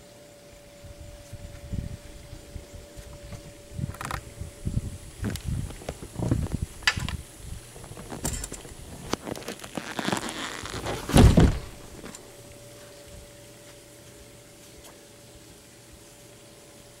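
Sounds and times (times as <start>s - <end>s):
camera handling knocks and rubs: 7.8s - 12.2s
heavy thump: 10.8s - 12.1s.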